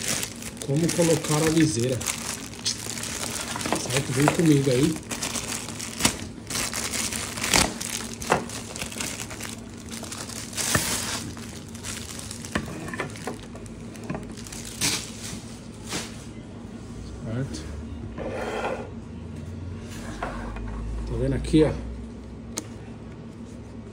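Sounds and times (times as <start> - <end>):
plastic bag crinkling: 0.0 - 15.5.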